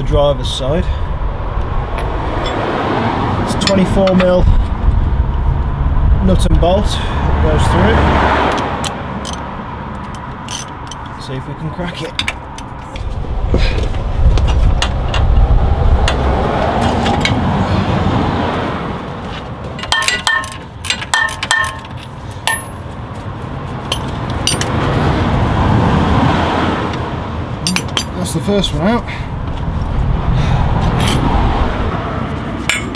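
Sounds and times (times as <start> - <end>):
spanners clinking on metal: 10.0 - 11.1, 19.8 - 22.8, 23.9 - 24.7, 27.6 - 28.3, 32.7 - 32.9
steady rushing noise: 12.2 - 32.9.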